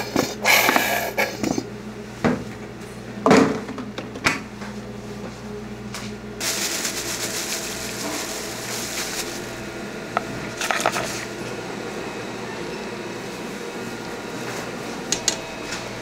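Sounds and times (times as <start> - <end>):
kitchen hum: 0.0 - 16.0
onions rustling in plastic bowl: 6.4 - 9.5.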